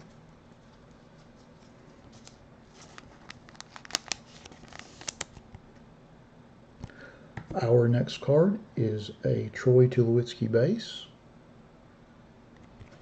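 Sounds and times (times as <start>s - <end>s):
cards clicking and rustling: 0.7s - 5.4s.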